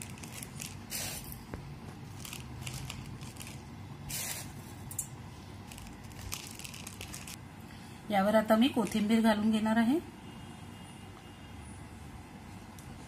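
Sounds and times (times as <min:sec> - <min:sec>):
crisp noodles rustling and crackling: 0:00.0 - 0:01.2, 0:02.1 - 0:04.2, 0:05.7 - 0:07.4.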